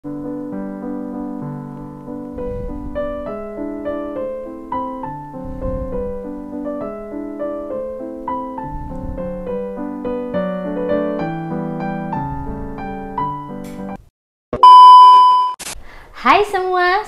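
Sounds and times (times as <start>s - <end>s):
gentle piano music: 0.0s - 14.0s.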